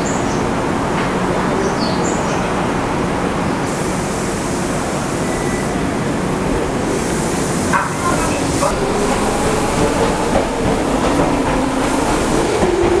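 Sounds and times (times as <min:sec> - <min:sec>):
train motors and wheels running: 0:00.1 - 0:13.0
hiss: 0:03.6 - 0:12.9.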